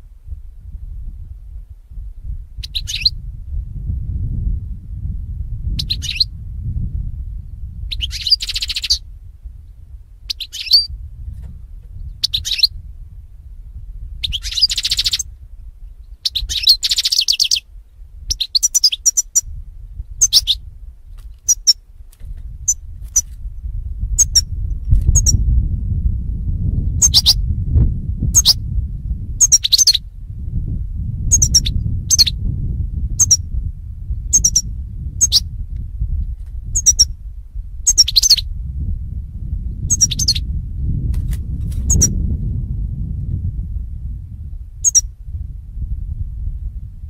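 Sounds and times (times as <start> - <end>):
low steady rumble: 0.0 - 47.0
goldfinch twittering and chirping: 2.6 - 3.1, 10.3 - 10.9, 12.2 - 12.7, 14.2 - 15.2, 18.3 - 19.4, 27.0 - 27.4, 29.4 - 30.0, 34.4 - 34.6, 35.2 - 35.4, 36.8 - 37.1, 37.9 - 38.4, 39.9 - 40.4, 44.8 - 45.0.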